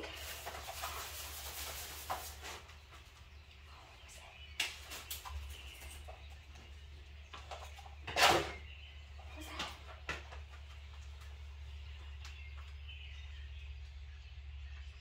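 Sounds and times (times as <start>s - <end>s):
umbrella fabric rustling: 0.0s - 2.9s
steady low hum: 2.7s - 15.0s.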